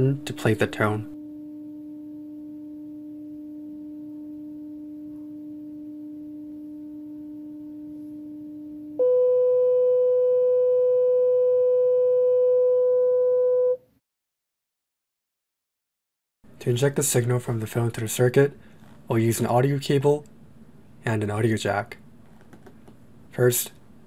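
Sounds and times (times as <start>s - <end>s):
sine tone from phone speaker: 1.1s - 13.9s.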